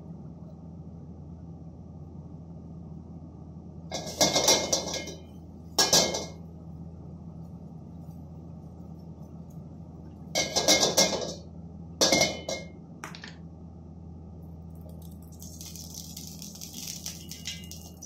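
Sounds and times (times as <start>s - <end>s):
steady low hum: 0.0s - 18.0s
metal cookware clattering: 3.9s - 6.4s, 10.4s - 11.4s, 12.0s - 12.7s, 17.2s - 18.0s
oil sizzling in wok: 3.9s - 6.4s, 14.8s - 18.0s.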